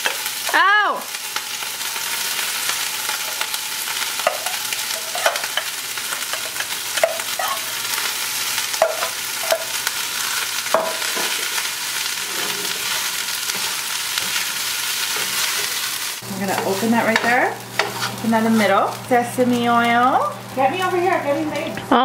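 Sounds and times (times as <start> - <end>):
rice sizzling in frying pan: 0.0 - 22.0
metal spatula scraping pot: 12.2 - 14.4, 16.5 - 18.8.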